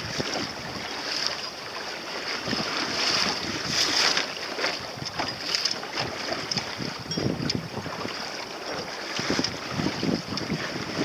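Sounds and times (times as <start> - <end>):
wind buffeting microphone: 0.0 - 1.0, 2.4 - 4.0, 4.7 - 11.0
water splashing against hull: 0.0 - 11.0.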